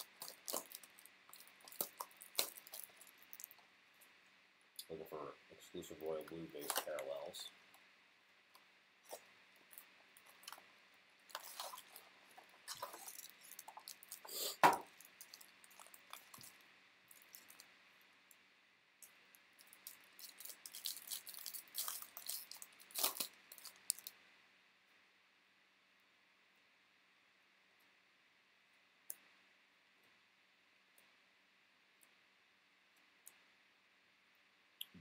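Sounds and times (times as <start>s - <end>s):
card pack wrappers crinkling: 0.0s - 3.6s, 6.1s - 7.4s, 9.1s - 17.7s, 19.6s - 24.2s.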